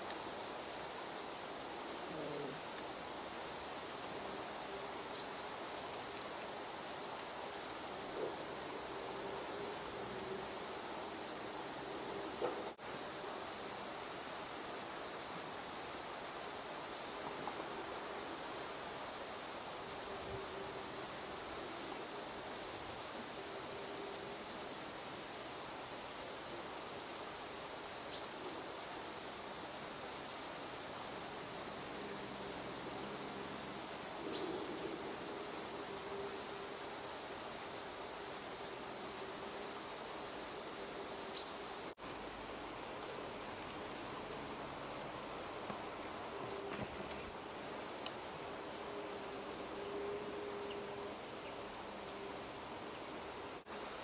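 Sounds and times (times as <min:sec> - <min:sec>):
small birds chirping: 0:00.0 - 0:53.7
background hiss: 0:00.0 - 0:54.0.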